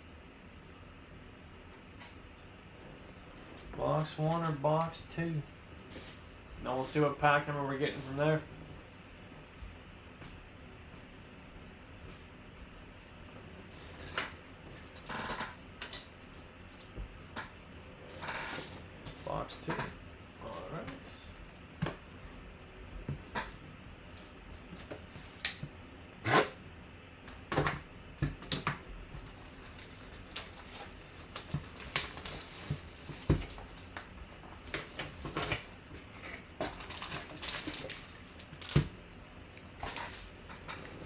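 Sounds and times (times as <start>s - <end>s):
foil pack rustling: 29.3s - 39.1s.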